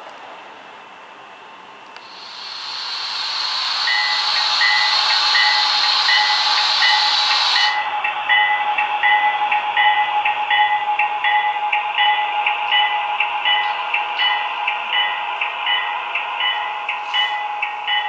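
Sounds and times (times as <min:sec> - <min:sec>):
locomotive steam hiss: 0:02.0 - 0:08.0
locomotive bell ringing: 0:03.8 - 0:18.0.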